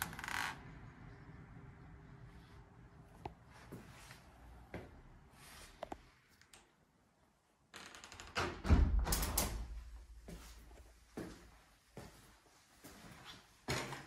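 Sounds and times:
door thudding shut: 8.4s - 9.8s.

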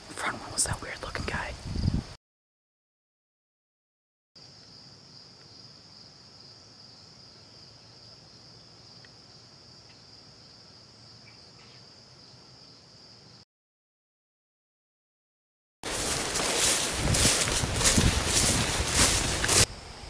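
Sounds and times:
crickets trilling: 0.1s - 2.1s, 4.4s - 13.4s, 15.9s - 20.0s.

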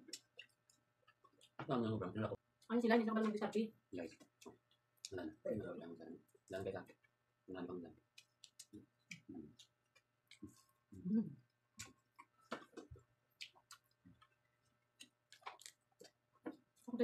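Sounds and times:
chewing and handling food: 0.0s - 1.6s, 4.0s - 5.2s, 8.0s - 17.0s.

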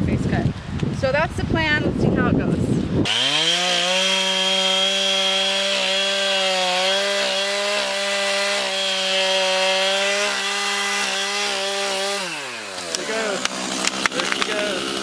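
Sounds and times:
chainsaw cutting wood: 3.0s - 15.0s.

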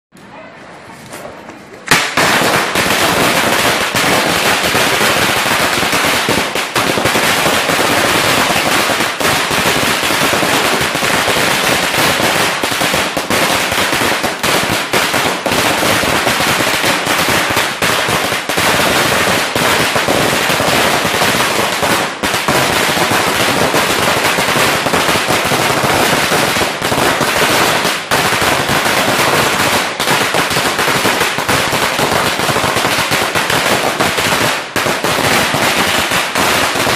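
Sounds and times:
firecracker string rapid bangs: 1.9s - 28.4s.

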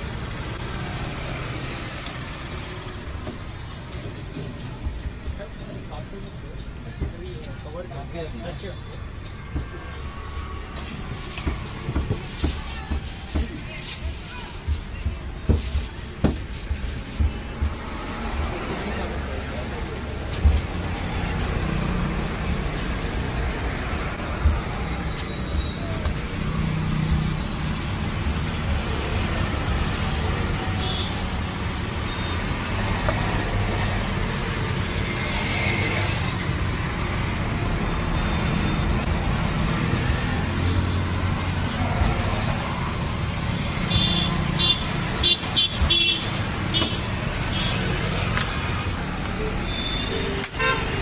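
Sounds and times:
roadside traffic rumble: 0.0s - 51.0s
car horn toots: 49.7s - 51.0s.

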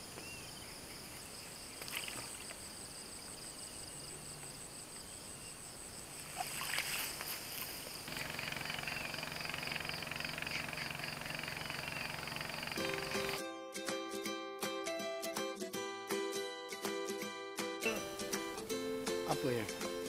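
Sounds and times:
insects chirring: 0.0s - 13.4s
water splashing and trickling: 1.6s - 2.9s, 6.1s - 13.4s.

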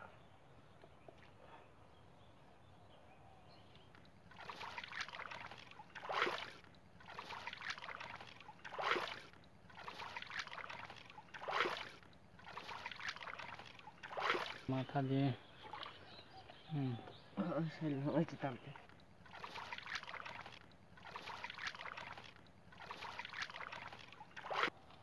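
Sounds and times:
hands sloshing in muddy water: 4.0s - 15.0s, 17.7s - 24.9s.

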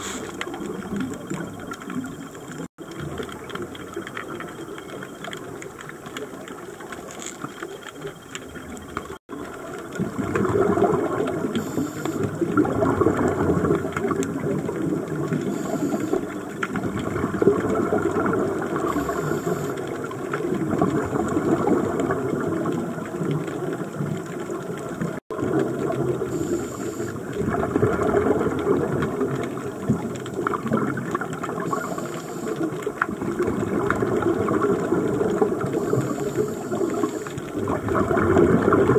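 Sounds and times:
regulator inhalation hiss: 0.0s - 0.4s, 11.6s - 12.3s, 15.6s - 16.2s, 18.9s - 19.8s, 26.3s - 27.2s, 31.7s - 32.6s, 35.8s - 37.4s
bubbly exhaled air underwater: 0.0s - 38.9s
faint clicking: 0.1s - 38.9s.

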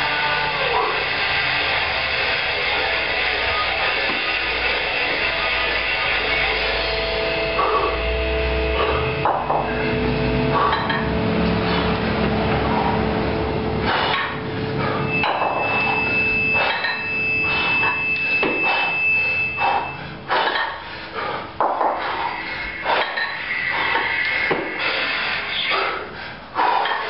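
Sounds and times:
kettlebells clanking together: 10.5s - 11.1s, 13.8s - 19.0s, 19.6s - 20.9s, 21.6s - 24.8s, 26.6s - 27.0s.

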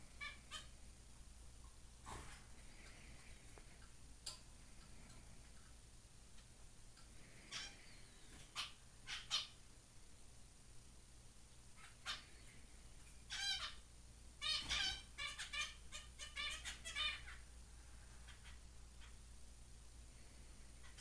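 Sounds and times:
finches calling: 7.2s - 9.6s, 14.4s - 17.4s.

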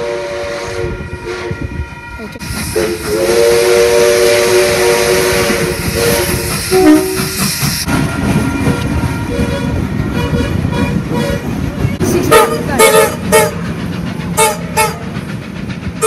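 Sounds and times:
steam locomotive chime whistle: 0.0s - 7.5s
steam hissing: 2.4s - 8.5s, 12.4s - 16.0s.

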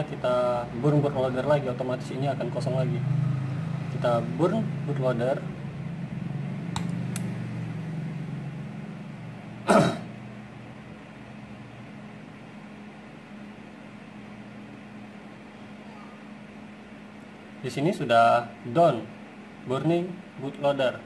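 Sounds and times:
steady low hum: 0.0s - 21.0s
person coughing: 9.6s - 10.2s.

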